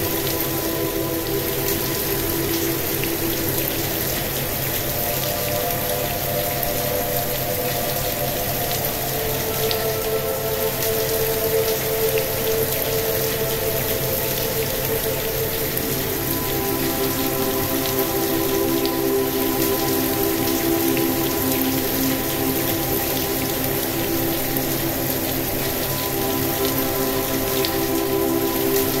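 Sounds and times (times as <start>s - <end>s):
relaxation music drone: 0.0s - 29.0s
steady rain: 0.0s - 29.0s.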